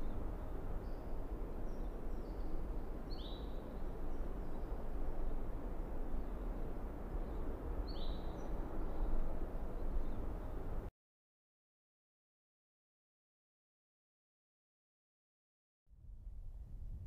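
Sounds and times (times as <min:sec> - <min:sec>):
bird chirping: 0:01.7 - 0:04.8, 0:07.2 - 0:09.2.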